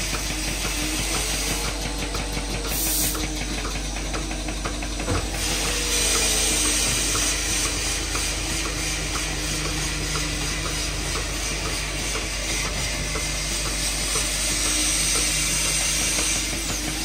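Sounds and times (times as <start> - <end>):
hiss of spraying water and air: 0.0 - 3.4, 5.3 - 17.0.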